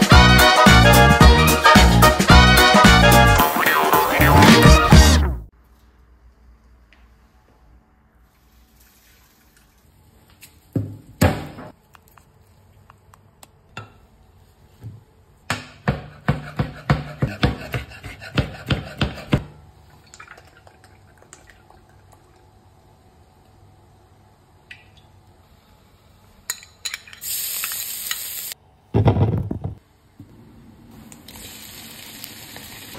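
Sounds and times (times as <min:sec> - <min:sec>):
knife chopping on cutting board: 0:15.5 - 0:19.5.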